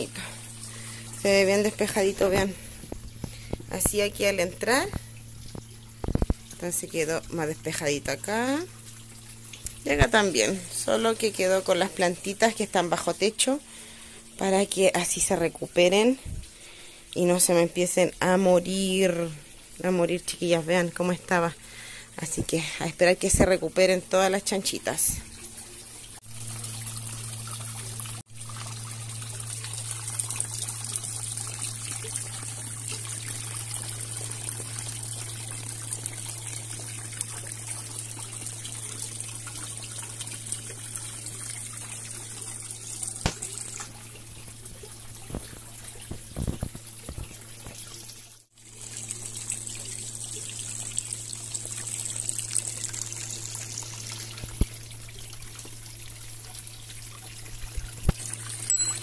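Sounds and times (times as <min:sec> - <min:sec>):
steady low hum: 0:00.0 - 0:14.4
water trickling and splashing: 0:00.0 - 0:17.2, 0:20.8 - 0:59.0.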